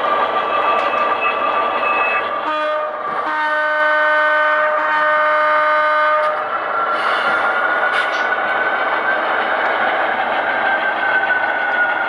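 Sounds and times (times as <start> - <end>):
locomotive running noise: 0.0 - 12.0
model locomotive diesel horn: 2.4 - 6.4.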